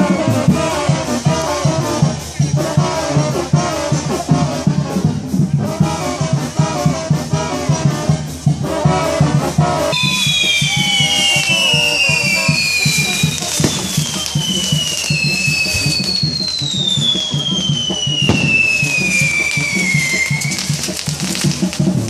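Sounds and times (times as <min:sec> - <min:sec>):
whistling fireworks: 0:00.0 - 0:02.0, 0:08.7 - 0:22.0
brass band playing: 0:00.0 - 0:22.0.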